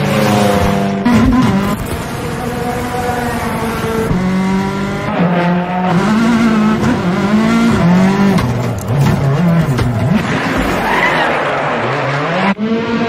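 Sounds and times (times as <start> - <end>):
race car engine revving: 0.0 - 13.0.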